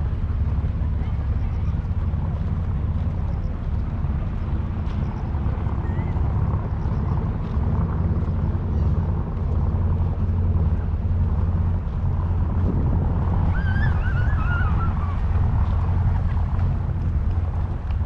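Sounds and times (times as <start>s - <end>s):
boat engine rumbling: 0.0s - 18.0s
wavering high-pitched call: 13.5s - 15.2s.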